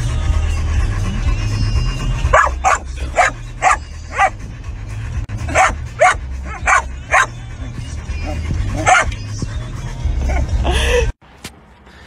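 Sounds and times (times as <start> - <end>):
dog barking: 2.3 - 4.4, 5.5 - 7.4, 8.2 - 9.2.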